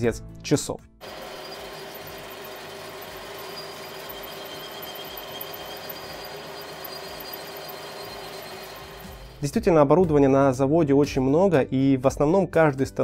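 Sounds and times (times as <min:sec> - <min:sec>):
coolant hissing: 0:01.0 - 0:09.4
metal lathe running: 0:01.0 - 0:09.4
high steady tones: 0:01.0 - 0:09.5.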